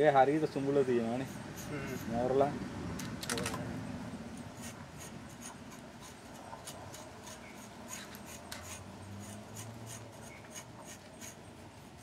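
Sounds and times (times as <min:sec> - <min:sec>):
blade scraping bark: 0:04.6 - 0:11.5.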